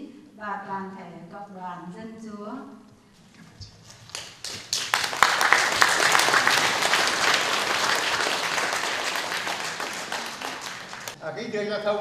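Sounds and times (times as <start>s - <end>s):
congregation applauding: 3.9s - 11.2s.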